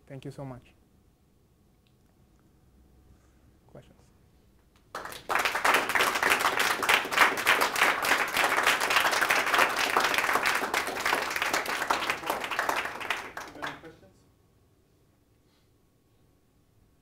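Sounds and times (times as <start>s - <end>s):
audience applauding: 4.9s - 13.9s.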